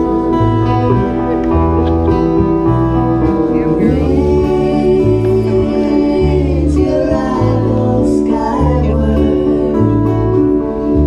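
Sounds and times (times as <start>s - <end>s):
acoustic guitar: 0.0s - 11.0s
bass line: 0.0s - 11.0s
held keyboard chords: 0.0s - 11.0s.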